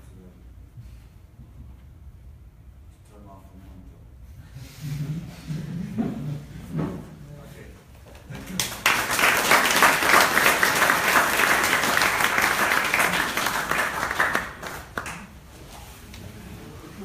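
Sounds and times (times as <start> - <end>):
audience applauding: 8.3 - 15.3.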